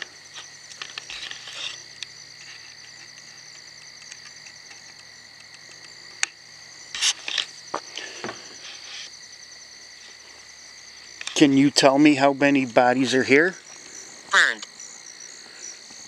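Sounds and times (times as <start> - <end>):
insects and frogs trilling: 0.0 - 16.0.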